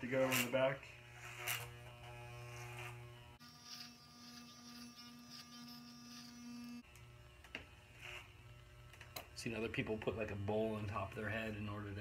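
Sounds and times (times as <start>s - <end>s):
electric hair clippers buzzing: 0.2s - 9.4s.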